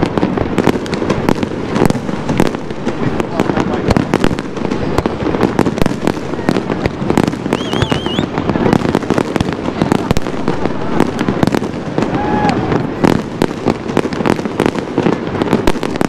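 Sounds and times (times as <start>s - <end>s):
fireworks bangs and crackles: 0.0s - 16.0s
wavering firework whistle: 7.3s - 8.4s, 11.9s - 13.1s.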